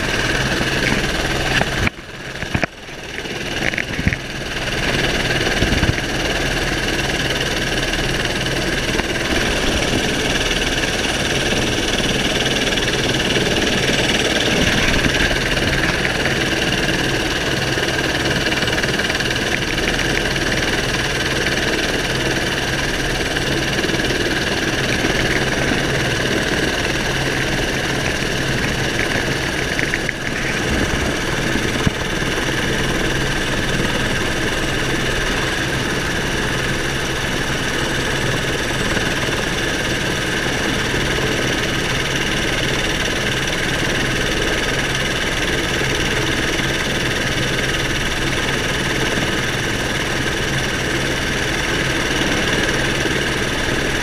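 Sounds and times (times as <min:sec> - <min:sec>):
helicopter engine and rotor idling: 0:00.0 - 0:54.0.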